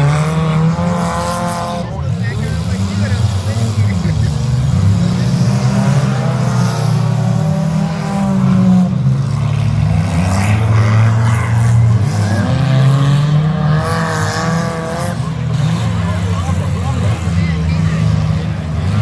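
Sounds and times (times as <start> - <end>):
car engines revving: 0.0 - 19.0.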